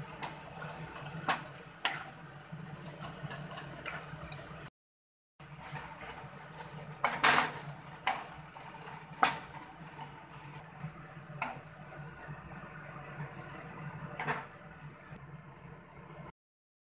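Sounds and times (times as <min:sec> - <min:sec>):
wooden spatula scraping metal pan: 0:01.8 - 0:03.9, 0:05.5 - 0:14.6.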